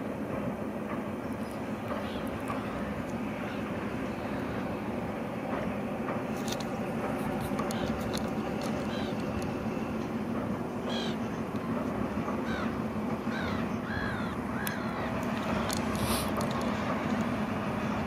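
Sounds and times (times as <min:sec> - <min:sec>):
diesel train passing drone: 0:00.0 - 0:18.0
bird calling: 0:01.4 - 0:04.6, 0:07.5 - 0:09.4, 0:10.8 - 0:11.5, 0:12.3 - 0:16.4.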